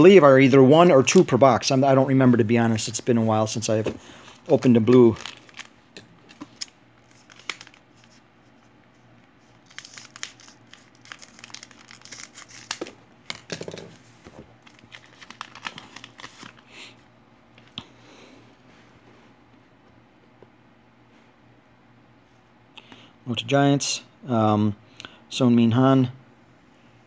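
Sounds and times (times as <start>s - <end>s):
cards being handled: 3.7s - 8.6s, 9.4s - 16.7s
wrapper tearing and crinkling: 4.5s - 5.8s, 6.4s - 8.1s, 9.6s - 13.5s, 14.6s - 16.6s.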